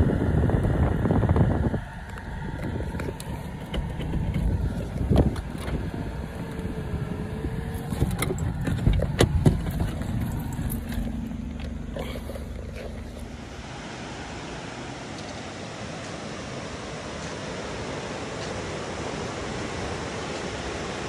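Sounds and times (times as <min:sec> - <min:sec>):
car cabin low rumble: 0:00.0 - 0:15.4.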